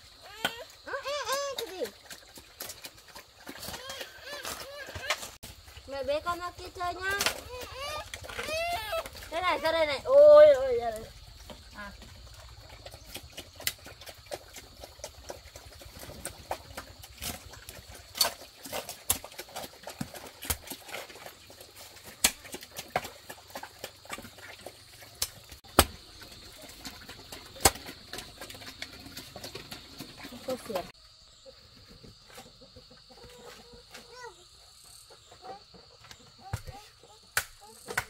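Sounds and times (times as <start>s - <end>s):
hoe chopping wet clay soil: 10.9s - 31.0s.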